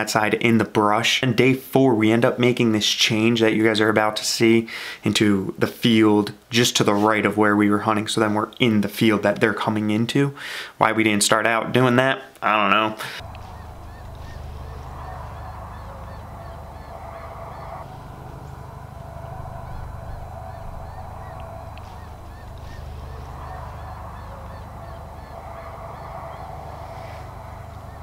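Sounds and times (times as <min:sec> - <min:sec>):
steady low hum: 0:13.2 - 0:28.0.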